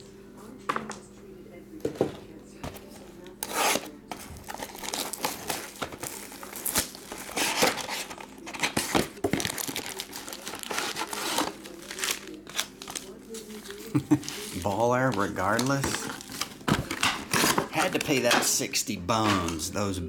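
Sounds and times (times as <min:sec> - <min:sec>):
foil packs rustling: 0:03.2 - 0:19.6
plastic shrink wrap crinkling: 0:03.4 - 0:18.5.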